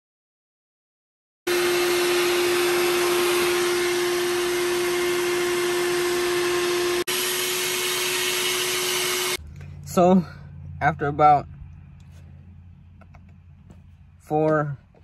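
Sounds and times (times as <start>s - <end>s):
vacuum cleaner running: 1.5s - 9.4s.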